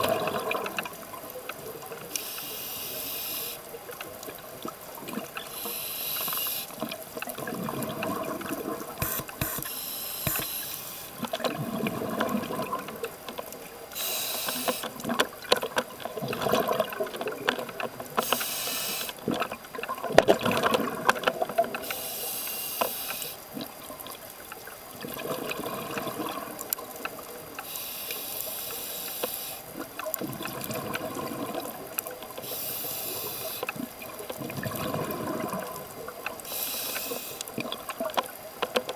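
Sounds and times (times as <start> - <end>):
exhaled air bubbling: 0.0 - 9.6, 10.2 - 27.8, 29.5 - 38.5
regulator inhale hiss: 2.1 - 3.7, 5.5 - 6.8, 9.0 - 11.2, 13.9 - 15.0, 18.2 - 19.2, 21.8 - 23.4, 27.6 - 29.7, 32.4 - 33.7, 36.4 - 37.5.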